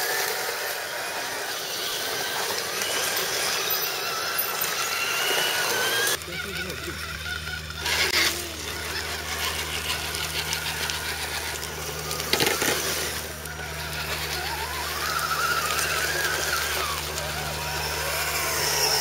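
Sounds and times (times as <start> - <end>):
electric motors whining: 0.0 - 19.0
steady low hum: 5.8 - 19.0
scraping on dirt: 7.8 - 18.9.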